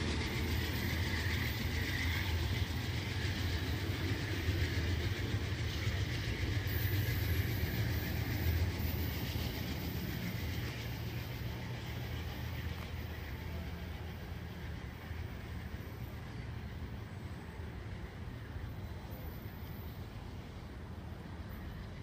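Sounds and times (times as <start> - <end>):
train wheels rumbling on track: 0.0 - 22.0.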